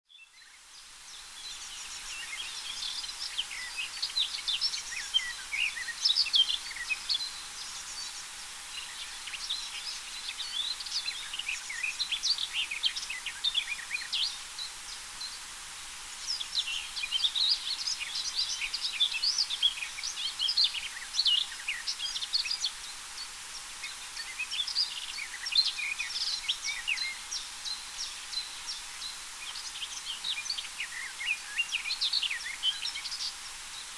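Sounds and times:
warbler singing: 0.1s - 33.9s.

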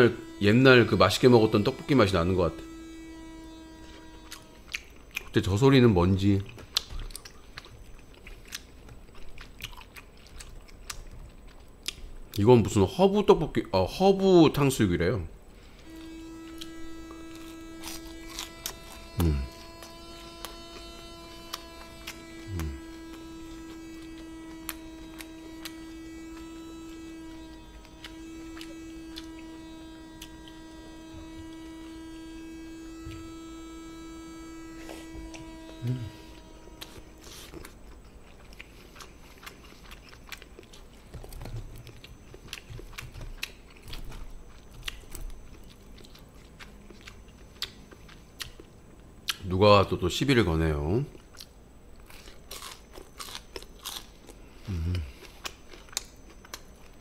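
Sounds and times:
electrical hum: 0.0s - 57.0s
chewing crispy food: 6.2s - 12.5s, 21.5s - 26.8s, 27.6s - 29.4s, 36.8s - 49.5s, 51.1s - 57.0s.

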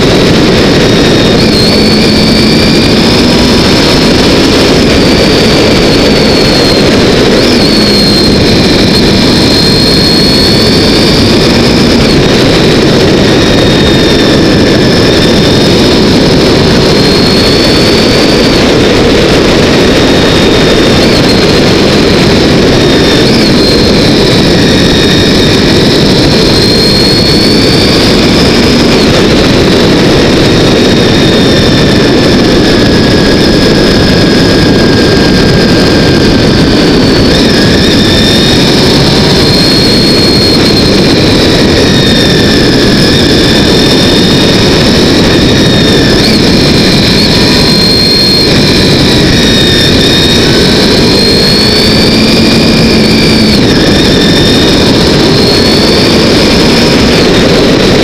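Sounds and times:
faint whine: 0.0s - 58.0s
motorcycle engine running: 0.0s - 58.0s
wind noise: 0.0s - 58.0s.

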